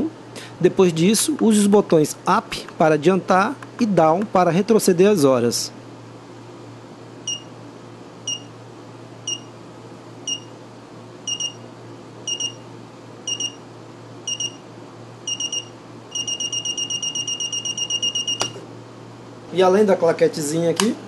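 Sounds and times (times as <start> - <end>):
alarm clock beeping: 11.3 - 11.6, 12.3 - 12.6, 13.3 - 13.6, 14.3 - 14.6, 15.3 - 18.5.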